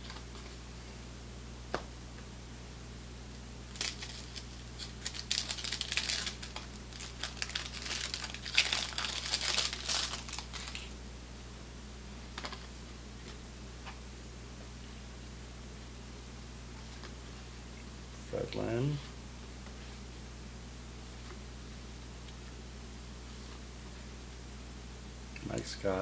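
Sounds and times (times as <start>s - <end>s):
paper wrapper tearing and crinkling: 3.7s - 10.9s.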